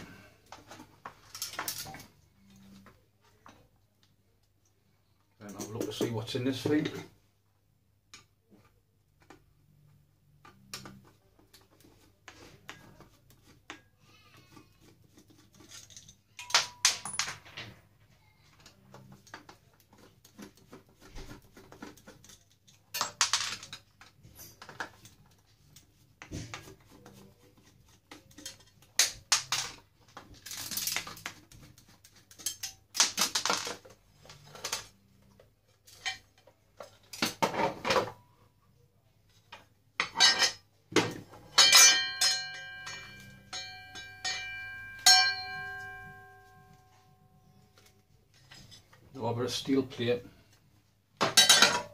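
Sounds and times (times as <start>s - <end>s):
metallic clicks and scrapes: 18.6s - 37.2s.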